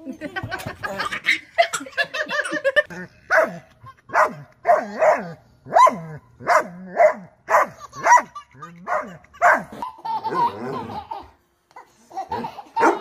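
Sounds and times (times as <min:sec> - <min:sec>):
dog barking: 0:03.3 - 0:08.3, 0:08.9 - 0:09.7, 0:12.8 - 0:13.0.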